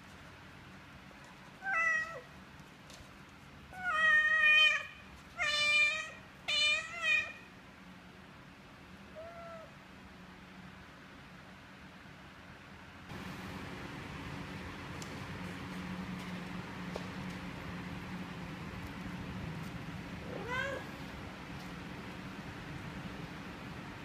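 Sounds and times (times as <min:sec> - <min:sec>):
cat meowing: 0:01.6 - 0:02.3, 0:03.8 - 0:07.5, 0:09.1 - 0:09.8, 0:20.2 - 0:21.0.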